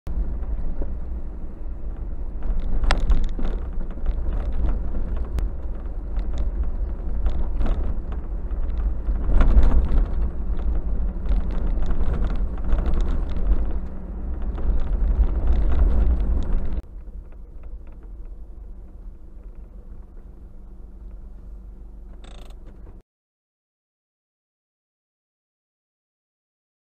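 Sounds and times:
vehicle driving on dirt track: 0.1 - 23.0
knocks and rattles: 2.3 - 18.4.

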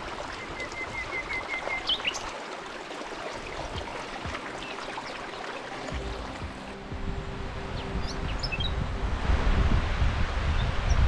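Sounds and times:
mountain stream running: 0.0 - 11.0.

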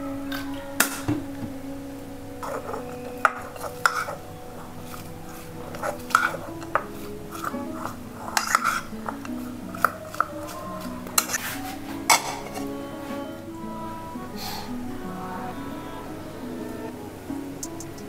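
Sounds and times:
quiet background music: 0.0 - 18.0
spoon clinking and scraping bowl: 2.4 - 12.8.

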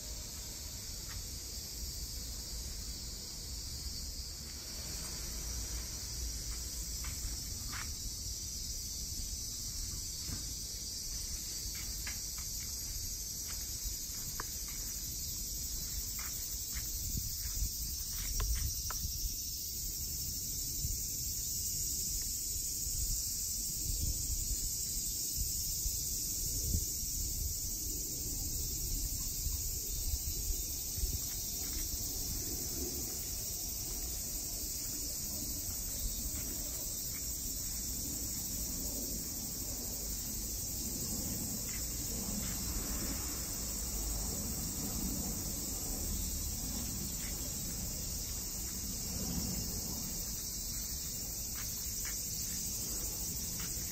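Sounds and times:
insects droning: 0.0 - 53.9.

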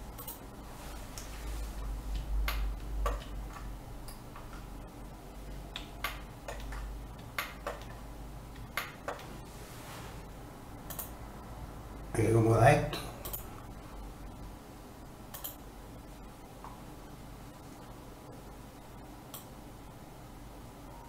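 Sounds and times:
low steady hum: 0.0 - 21.0
computer mouse clicks: 0.2 - 0.4, 2.1 - 4.6, 5.7 - 8.0, 10.9 - 11.2, 13.2 - 13.5, 15.3 - 15.6, 19.3 - 19.5.

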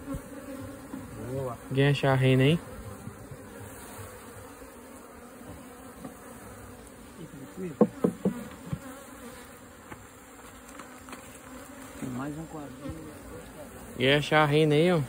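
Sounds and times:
bees buzzing: 0.0 - 15.0.

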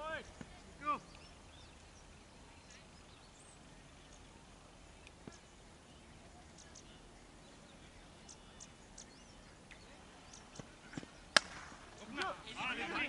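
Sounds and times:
bird chirps: 0.2 - 4.4, 5.0 - 11.4
cricket bat striking ball: 11.4 - 11.8.

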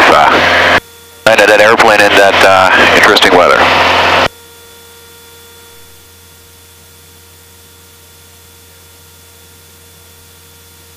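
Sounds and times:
low hum: 0.0 - 6.2.

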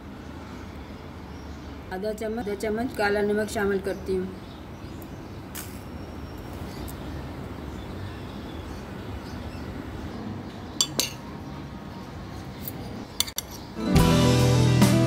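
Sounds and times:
low background noise: 0.0 - 13.8
metal spoon clinking on dish: 10.8 - 11.3, 13.2 - 13.6.

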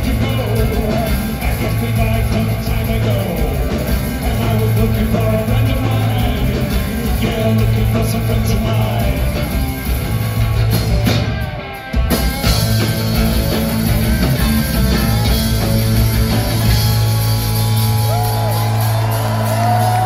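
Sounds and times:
sung vocals: 0.0 - 9.8
rock band playing loud: 0.0 - 20.0.

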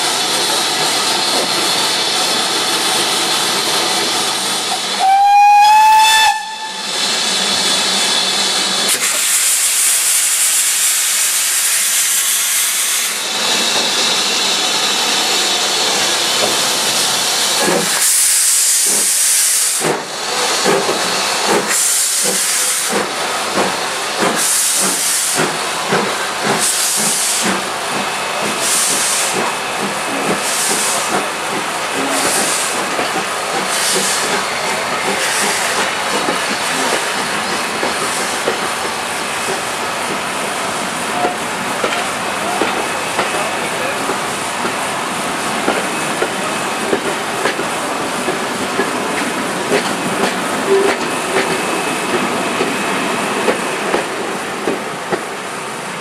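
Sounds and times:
steam locomotive hissing: 0.0 - 56.0
wheels clicking on rails: 45.6 - 52.8.

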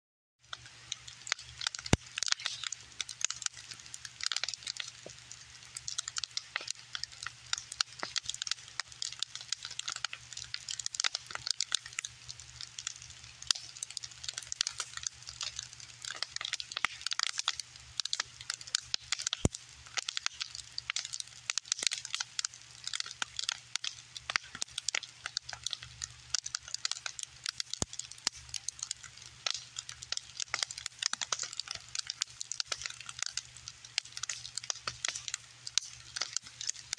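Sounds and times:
bonfire crackling and popping: 0.4 - 36.9
fire hiss: 0.4 - 36.9.

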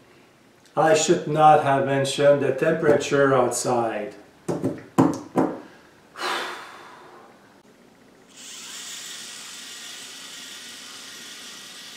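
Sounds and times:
man breathing out in gusts: 5.6 - 7.4.

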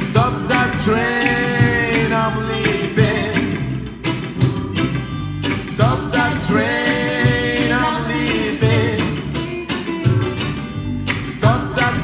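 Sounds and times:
live band music: 0.0 - 12.0.

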